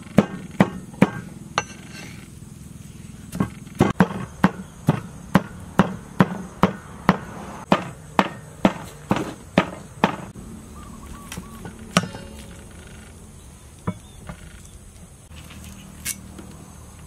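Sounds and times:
cleaver chopping on wooden board: 0:00.2 - 0:01.3, 0:03.3 - 0:10.3.

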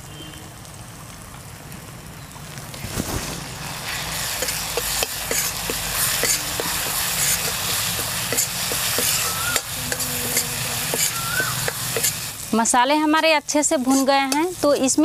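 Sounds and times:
masala sizzling in hot oil: 0:00.0 - 0:15.0
ladle scraping pan: 0:03.9 - 0:12.3.

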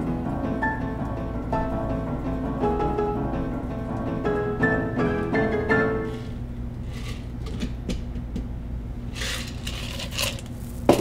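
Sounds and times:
plucked-string background music: 0:00.0 - 0:06.3
cocktail strained into ice: 0:09.2 - 0:11.0.

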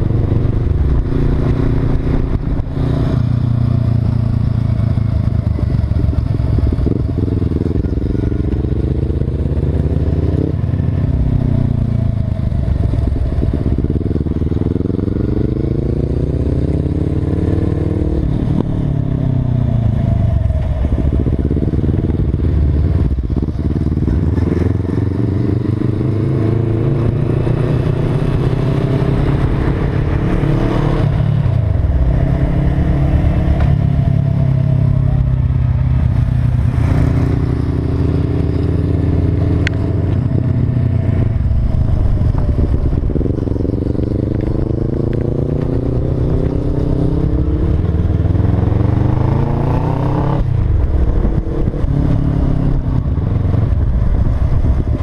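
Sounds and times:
motorcycle engine: 0:00.0 - 0:55.0
wind rush: 0:18.0 - 0:55.0.

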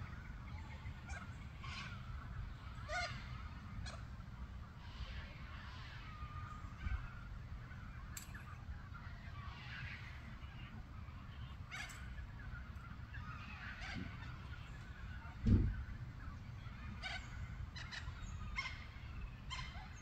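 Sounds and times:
birds calling: 0:00.0 - 0:20.0
low rumble on microphone: 0:12.2 - 0:19.9.

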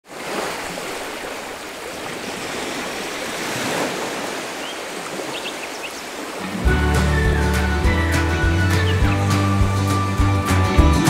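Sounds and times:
ocean surf breaking on beach: 0:00.0 - 0:06.7.

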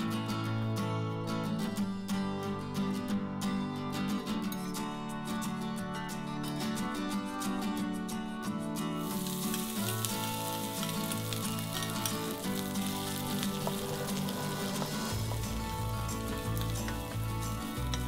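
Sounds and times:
shrimp sizzling in hot oil: 0:09.0 - 0:18.0.

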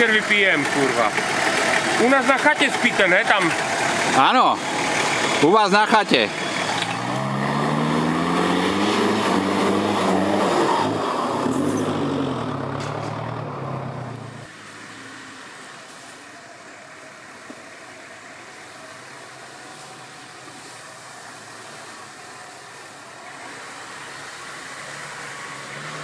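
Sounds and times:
off-road vehicle engine revving: 0:00.0 - 0:15.5, 0:23.1 - 0:26.0.

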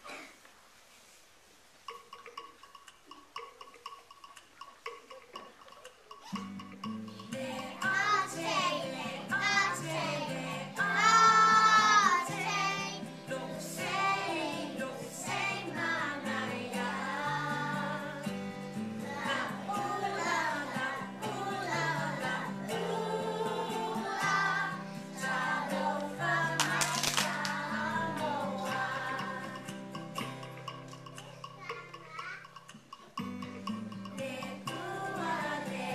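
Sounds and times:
musical backing: 0:01.8 - 0:35.9
children singing: 0:07.2 - 0:30.2, 0:34.1 - 0:35.9.

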